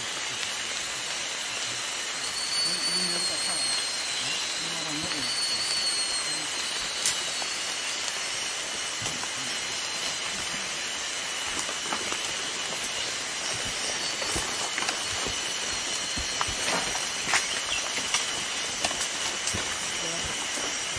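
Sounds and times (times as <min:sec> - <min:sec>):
steady hiss: 0:00.0 - 0:20.9
faint high-pitched tones: 0:01.6 - 0:07.8.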